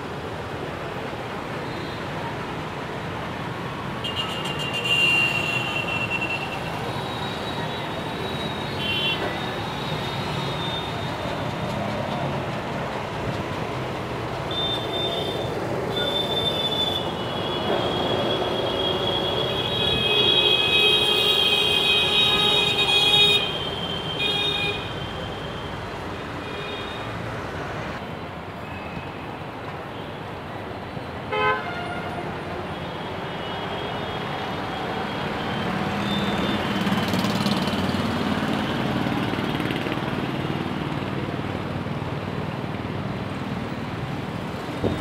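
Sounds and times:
busy road traffic: 0.0s - 45.0s
strong wind: 44.3s - 45.0s.

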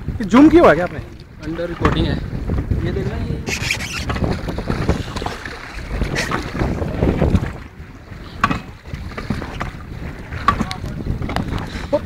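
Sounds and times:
wind buffeting microphone: 0.0s - 12.0s
short splashes: 3.4s - 10.9s.

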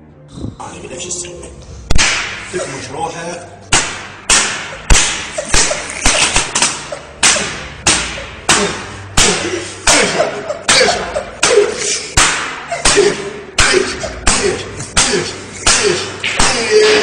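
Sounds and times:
hands slapping hard surface: 1.9s - 2.4s, 3.7s - 9.4s, 10.7s - 17.0s.

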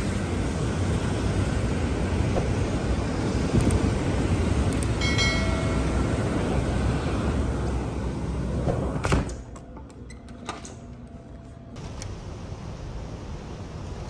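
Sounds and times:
door shutting with thud: 8.6s - 9.4s.

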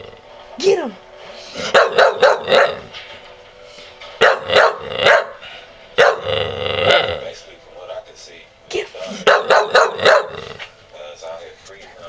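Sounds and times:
dog barking: 1.6s - 2.9s, 4.2s - 5.4s, 6.0s - 6.4s, 9.2s - 10.5s.

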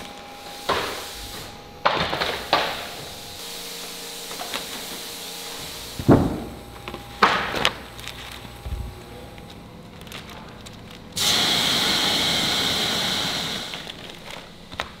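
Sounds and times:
machine hum: 0.0s - 15.0s
wooden panels knocking: 6.0s - 7.7s.

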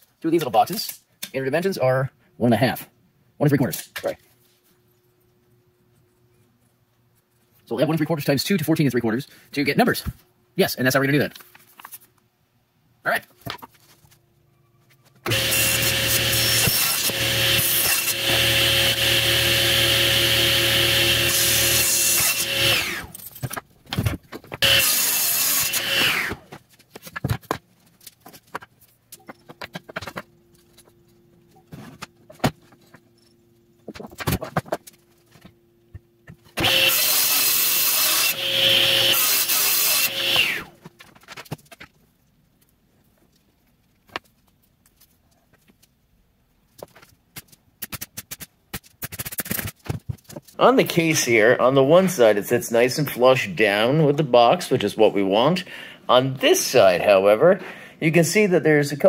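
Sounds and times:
saw blade winding down: 15.3s - 23.2s, 24.6s - 26.4s, 36.6s - 40.8s
table saw cutting plywood: 15.3s - 23.2s, 24.6s - 26.5s, 36.6s - 40.8s.

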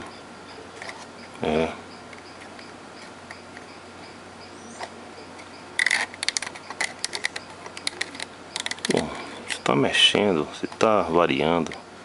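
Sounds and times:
faint steady hum: 0.0s - 12.0s
plastic radio clicks and crackles: 5.8s - 9.6s.

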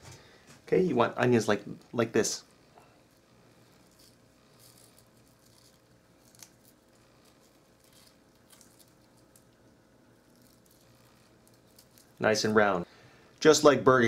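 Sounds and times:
onion rings crackling and squeaking: 3.0s - 12.9s.

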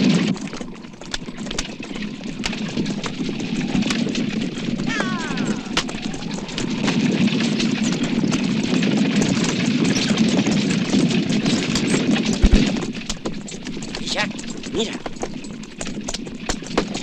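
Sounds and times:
coach body rattling and creaking: 0.0s - 17.0s
wheels rumbling: 0.0s - 17.0s
heavy jolt: 12.2s - 13.1s.

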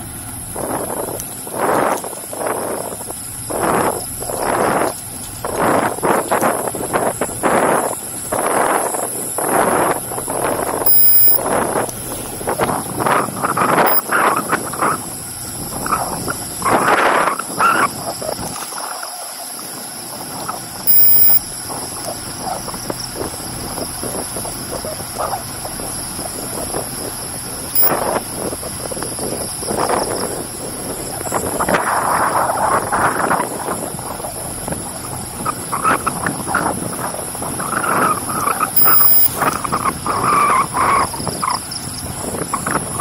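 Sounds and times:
bicycle tyres rolling: 0.0s - 43.0s
wind buffeting microphone: 0.0s - 43.0s
loud high-pitched tone: 10.8s - 11.4s, 13.8s - 14.1s, 20.9s - 21.5s, 27.8s - 28.1s, 38.8s - 39.4s
short calls in background: 10.8s - 11.4s, 20.9s - 21.4s
short high electronic beep: 10.8s - 11.4s, 13.8s - 14.0s, 20.9s - 21.4s, 27.8s - 28.0s, 38.8s - 39.3s.

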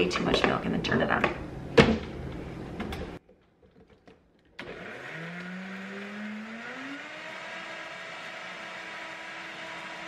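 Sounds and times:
blender motor running: 4.6s - 10.0s.

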